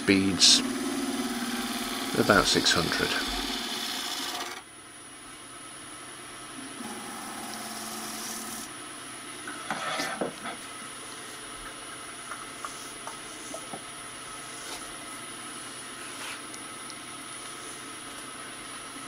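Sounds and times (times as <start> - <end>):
wood lathe whining: 0.0 - 4.6, 6.8 - 8.7.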